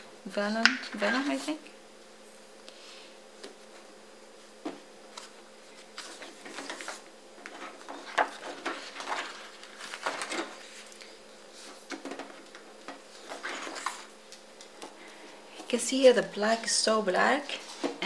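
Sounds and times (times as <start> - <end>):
paper pages turning: 5.1 - 14.8.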